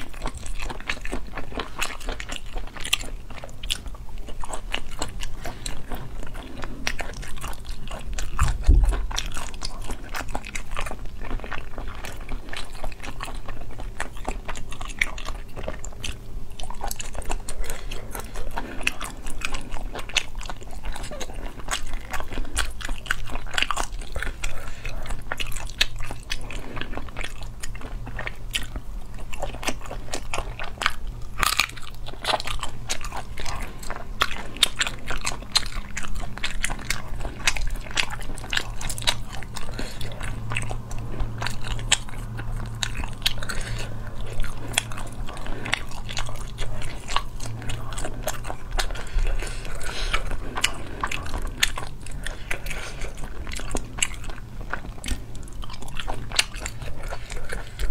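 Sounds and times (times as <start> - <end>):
chewing: 0.0 - 57.9.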